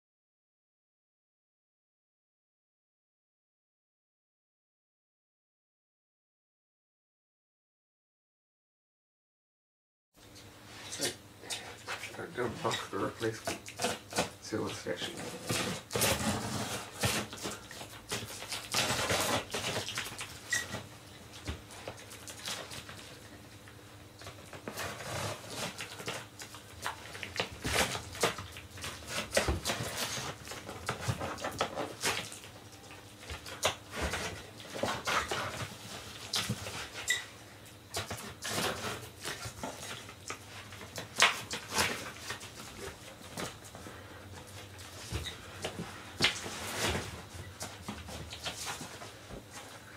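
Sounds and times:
tape tearing: 15.0s - 20.8s
cardboard flaps creaking: 15.0s - 20.9s
box cutter slicing tape: 15.2s - 19.9s.

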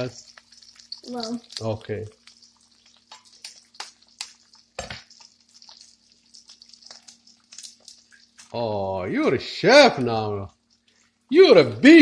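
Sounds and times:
eggs sizzling in a pan: 0.0s - 12.0s.

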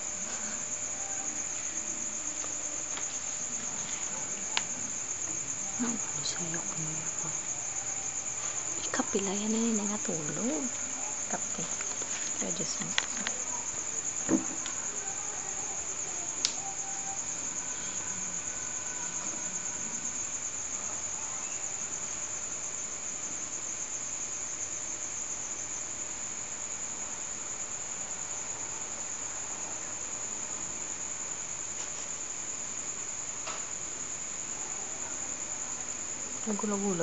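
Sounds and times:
crickets trilling: 0.0s - 37.0s.

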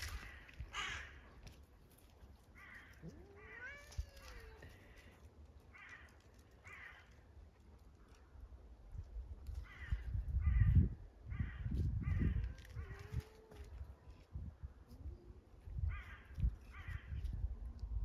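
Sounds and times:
cat short harsh calls: 3.0s - 4.7s
cat meowing: 3.0s - 4.8s.

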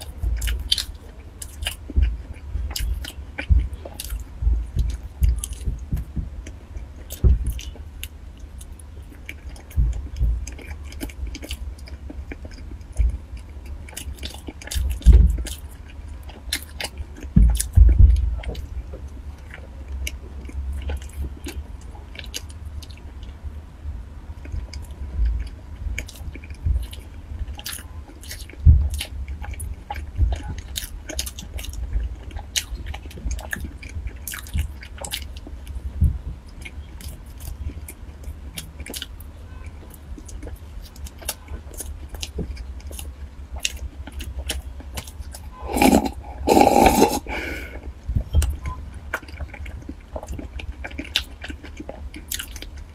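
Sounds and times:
person chewing food: 0.0s - 23.4s, 24.4s - 35.9s, 36.5s - 52.9s
low thuds: 3.4s - 6.4s, 7.2s - 7.6s, 35.9s - 36.4s
mouth clicks: 45.5s - 49.2s.

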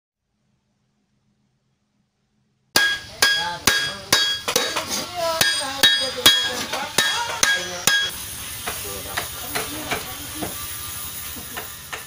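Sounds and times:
hammer striking metal gong: 2.8s - 4.8s, 5.4s - 8.2s.

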